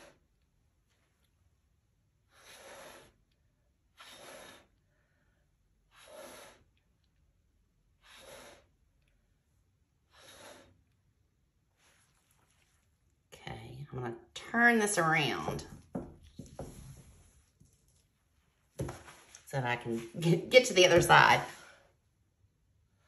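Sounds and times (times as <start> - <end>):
faint breath puffs: 2.3 - 6.8, 8.0 - 8.8, 10.0 - 11.0.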